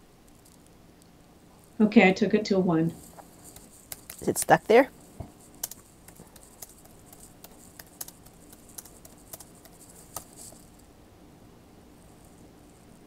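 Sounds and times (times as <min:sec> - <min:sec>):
typing on computer keyboard: 0:03.4 - 0:04.8, 0:05.4 - 0:10.7.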